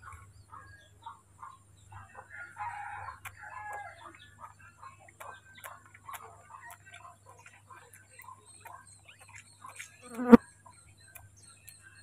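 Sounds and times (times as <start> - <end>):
bird chirps: 3.2 - 12.0.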